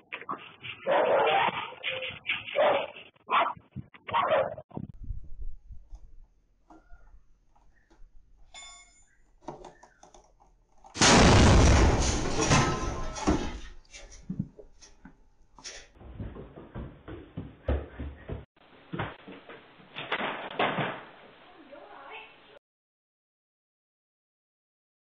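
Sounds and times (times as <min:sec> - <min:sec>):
debris falling: 0:10.9 - 0:14.2, 0:19.9 - 0:21.3
tyre exploding bang: 0:11.0 - 0:13.8.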